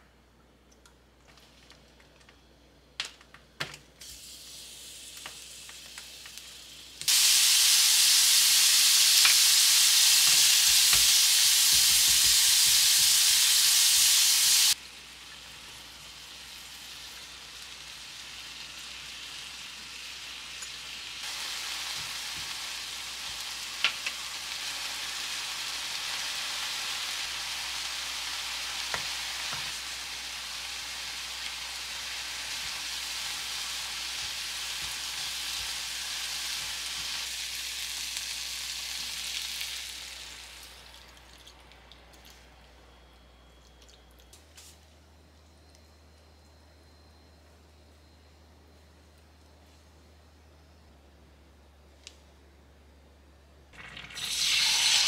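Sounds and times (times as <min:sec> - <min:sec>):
food sizzling in a frying pan: 0:04.0 - 0:40.9, 0:53.8 - 0:55.0.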